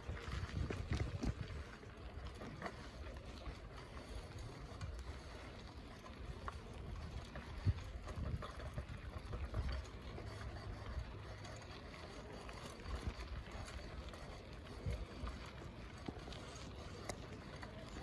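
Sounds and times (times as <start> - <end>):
wind noise on microphone: 0.0 - 1.8, 6.3 - 15.5
low rumble of bike riding: 0.0 - 18.0.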